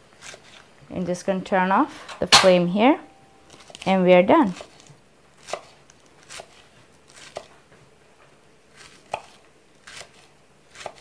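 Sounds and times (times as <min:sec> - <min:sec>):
knife chopping on wooden board: 0:08.8 - 0:11.0.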